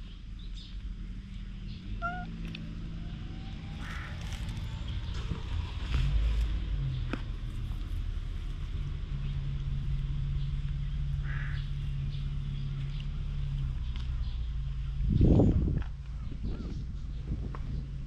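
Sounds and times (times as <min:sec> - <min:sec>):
faint high chirp: 0:01.7 - 0:02.4.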